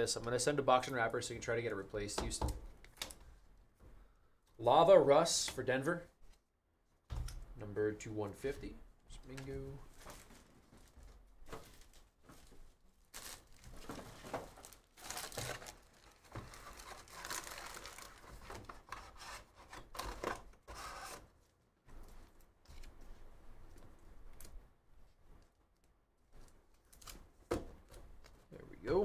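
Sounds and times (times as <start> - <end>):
cards rustling: 9.3 - 21.2
foil wrapper crinkling and tearing: 13.0 - 18.8.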